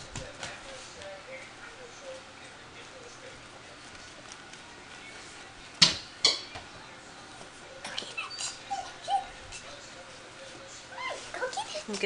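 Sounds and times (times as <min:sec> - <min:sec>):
puppy whimpering and yipping: 0:08.0 - 0:09.4
puppy yapping: 0:08.0 - 0:09.4.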